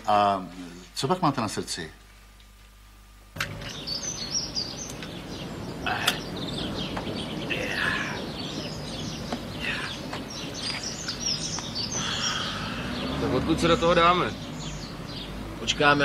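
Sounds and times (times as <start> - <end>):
steady background noise: 0.0 - 16.0
small birds chirping: 3.4 - 16.0.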